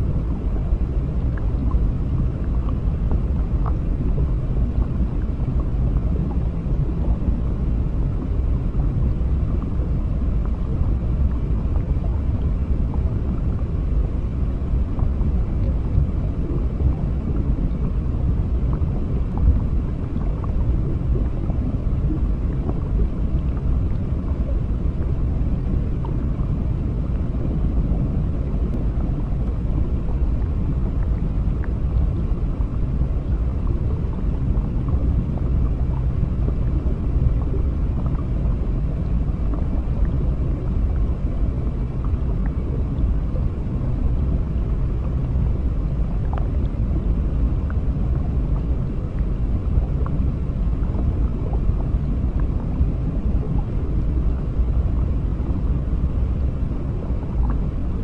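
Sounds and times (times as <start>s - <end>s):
faint bubbling: 0.0s - 58.0s
underwater rumble of water: 0.0s - 58.0s.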